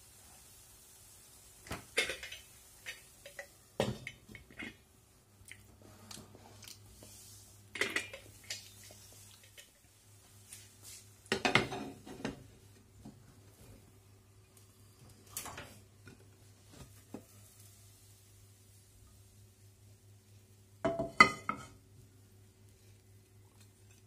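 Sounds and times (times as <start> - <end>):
cookware clinking and clanking: 1.9 - 4.8, 11.3 - 12.4, 20.9 - 21.8.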